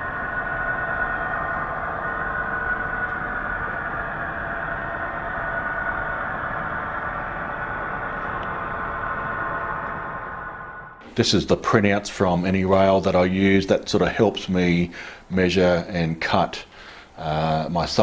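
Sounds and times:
model train humming and whining: 0:00.0 - 0:14.1.

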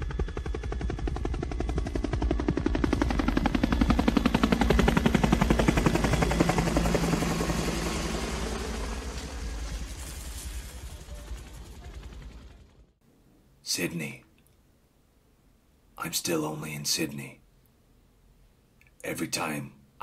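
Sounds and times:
helicopter rotor blades chopping: 0:00.0 - 0:13.0.

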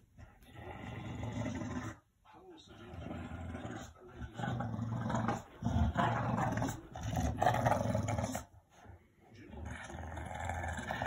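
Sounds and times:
dog growling in play: 0:00.4 - 0:02.0, 0:02.7 - 0:08.5, 0:09.5 - 0:11.0.

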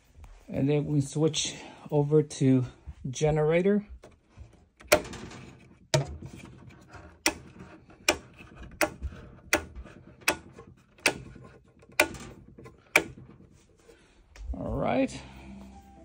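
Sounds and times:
rocker switches clicking: 0:08.0 - 0:12.3, 0:12.9 - 0:13.2.

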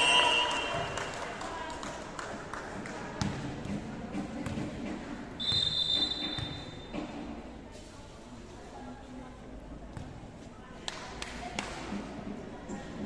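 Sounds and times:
referee's whistle: 0:00.0 - 0:00.7, 0:05.4 - 0:06.8
murmur of voices: 0:06.5 - 0:13.0.

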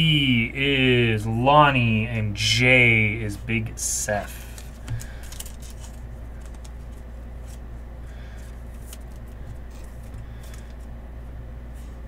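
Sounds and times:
low electrical hum: 0:00.0 - 0:12.0
trading cards rustling and clicking: 0:04.2 - 0:11.0.

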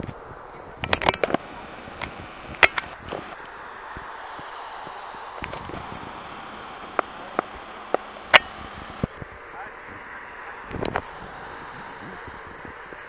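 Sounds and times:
distant jet noise: 0:00.7 - 0:13.0
sharp clicks: 0:00.8 - 0:03.5, 0:05.4 - 0:09.2.

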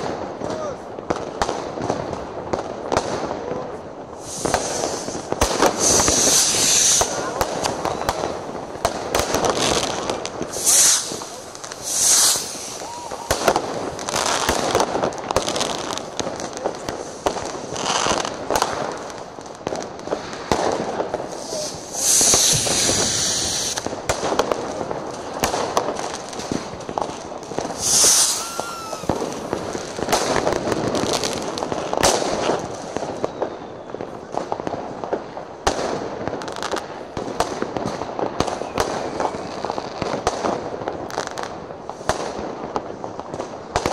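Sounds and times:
firecracker and rocket bangs: 0:00.0 - 0:43.9
fireworks hissing bursts: 0:04.0 - 0:35.2.

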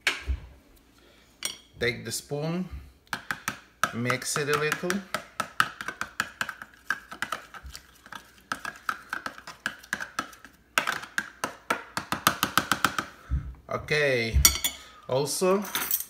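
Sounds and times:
spoon beating egg in plastic cup: 0:03.1 - 0:13.1.

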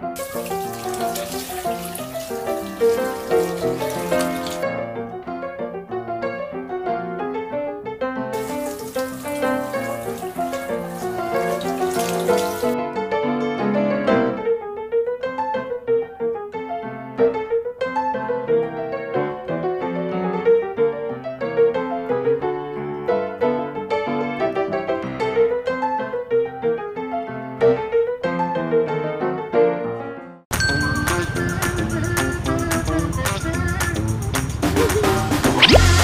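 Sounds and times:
piano music: 0:00.0 - 0:36.0
shower water hissing: 0:00.1 - 0:04.6, 0:08.4 - 0:12.8.

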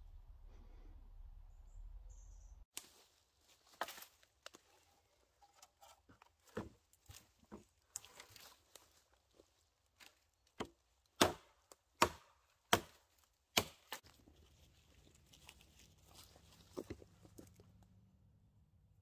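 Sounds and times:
axe chopping wood: 0:10.6 - 0:14.1.

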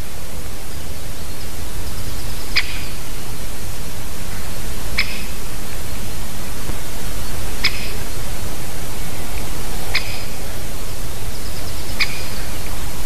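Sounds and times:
microphone hiss: 0:00.0 - 0:13.0.

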